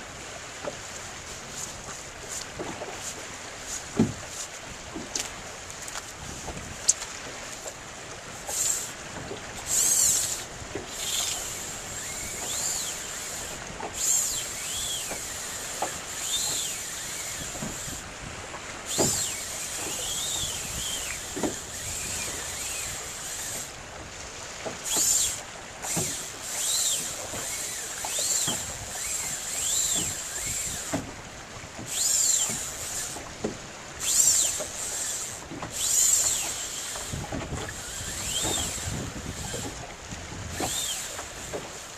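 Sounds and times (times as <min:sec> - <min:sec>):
choppy water around boat: 0:00.0 - 0:41.9
wind: 0:00.0 - 0:41.9
whistling whir: 0:09.7 - 0:18.0, 0:18.9 - 0:23.7, 0:24.9 - 0:31.0, 0:31.9 - 0:33.2, 0:34.0 - 0:39.6, 0:40.5 - 0:41.3.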